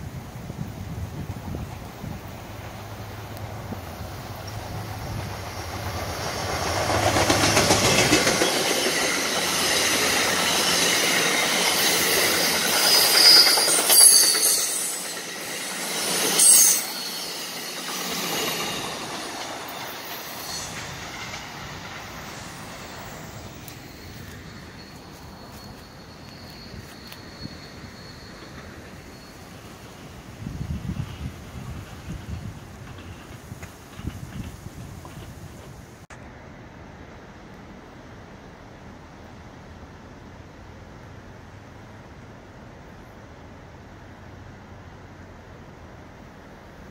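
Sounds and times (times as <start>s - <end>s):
train passing wheel and rail noise: 0.0s - 46.9s
wheels clicking over rail joints: 1.5s - 35.9s
short high wheel squeal: 8.2s - 21.4s, 22.1s - 30.0s.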